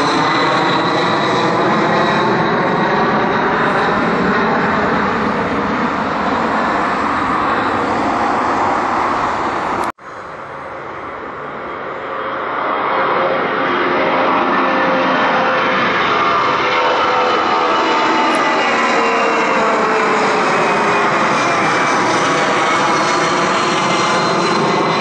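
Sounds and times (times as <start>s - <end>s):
high engine whine: 0.0s - 25.0s
jet engines roaring on climb: 0.0s - 25.0s
jet taking off: 0.0s - 25.0s.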